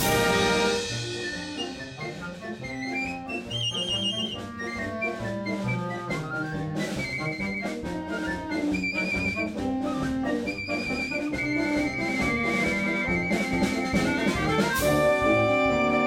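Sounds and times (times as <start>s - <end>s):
wind band playing chords: 0.0s - 16.0s.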